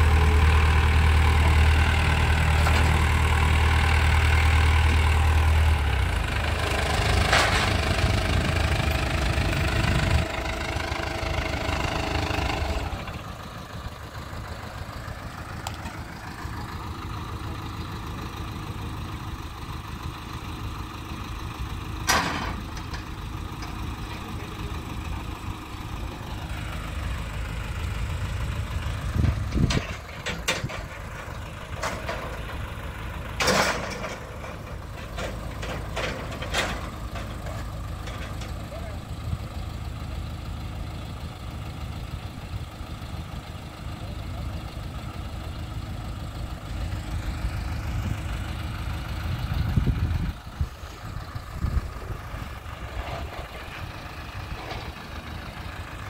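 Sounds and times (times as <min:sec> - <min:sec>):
diesel engine idling: 0:00.0 - 0:56.0.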